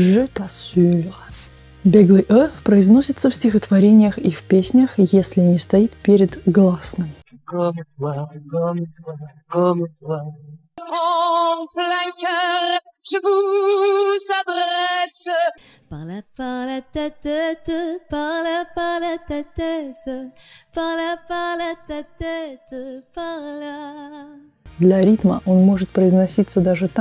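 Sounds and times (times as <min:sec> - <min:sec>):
lower softer woman singing: 0:10.8 - 0:24.5
woman singing with vibrato: 0:10.8 - 0:24.5.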